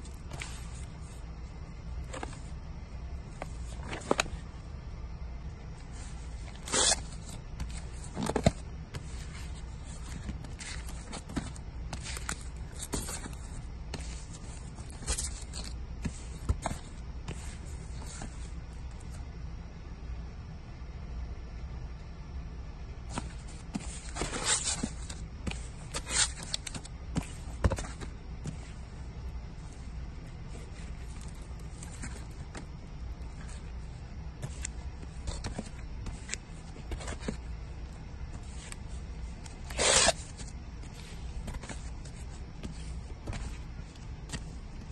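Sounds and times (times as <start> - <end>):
low steady rumble: 0.0 - 44.9
steady low hum: 0.0 - 44.9
record jackets flipping: 3.3 - 4.5, 6.0 - 17.0, 23.2 - 28.8, 38.3 - 44.9.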